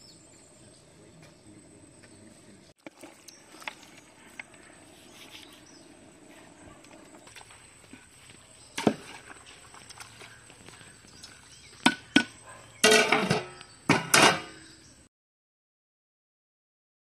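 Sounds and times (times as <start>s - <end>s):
metal ladle scraping a pot: 11.9s - 14.6s.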